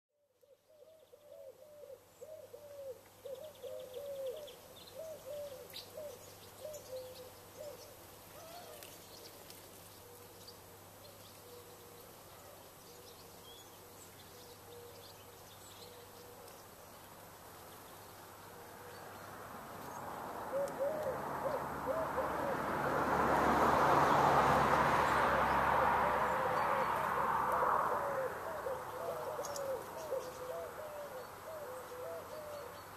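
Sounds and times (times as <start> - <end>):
pigeon cooing: 0.8 - 7.8, 20.5 - 22.9, 25.4 - 32.8.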